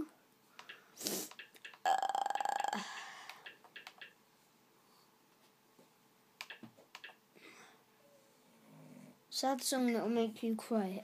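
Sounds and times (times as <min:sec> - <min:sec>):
faint clicks: 0:00.6 - 0:04.2
boy burping: 0:01.8 - 0:03.1.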